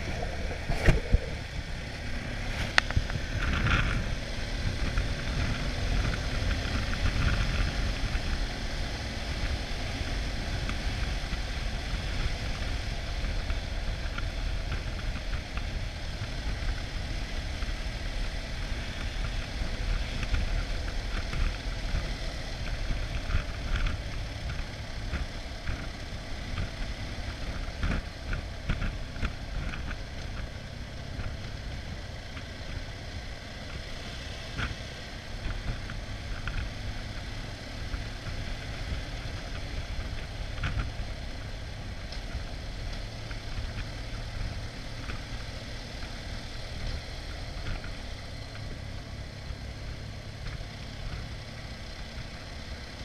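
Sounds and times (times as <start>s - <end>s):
wind rushing over microphone: 0.0s - 30.4s
motorcycle engine running steadily: 0.0s - 53.0s.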